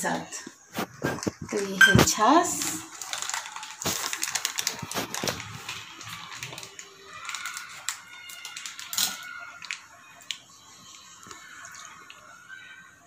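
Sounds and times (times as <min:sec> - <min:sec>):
plastic pouch crinkling: 0:00.7 - 0:12.7.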